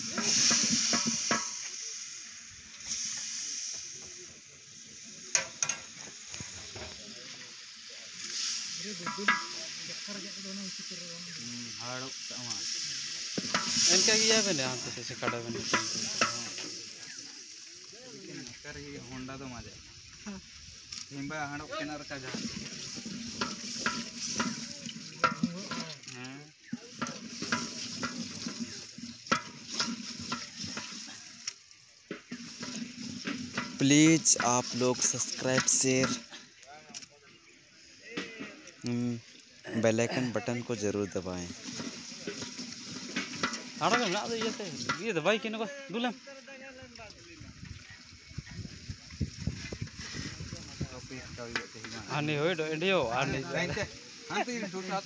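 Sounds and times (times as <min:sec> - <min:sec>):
wooden paddle stirring broth: 0:00.0 - 0:01.8, 0:08.2 - 0:10.2, 0:12.5 - 0:17.4, 0:22.2 - 0:37.0, 0:41.5 - 0:45.1
wooden stick scraping metal pot: 0:00.0 - 0:02.1, 0:08.2 - 0:17.6, 0:20.9 - 0:36.4, 0:41.0 - 0:45.5, 0:49.4 - 0:55.0
meat sizzling: 0:00.0 - 0:55.0
steady hiss: 0:00.0 - 0:55.0.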